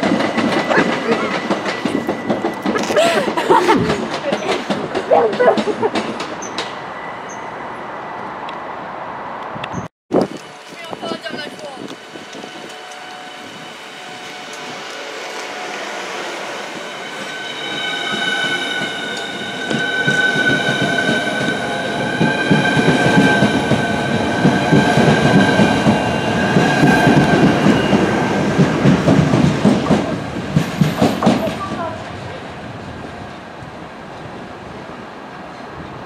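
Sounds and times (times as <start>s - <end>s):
wheels rumbling on rails: 0.0s - 36.0s
electric train high whine: 10.2s - 29.3s.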